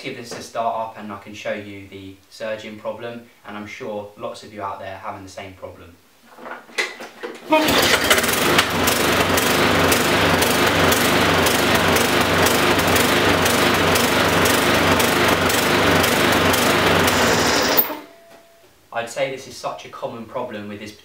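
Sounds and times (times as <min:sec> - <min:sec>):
lawnmower engine surging: 0:07.5 - 0:18.0.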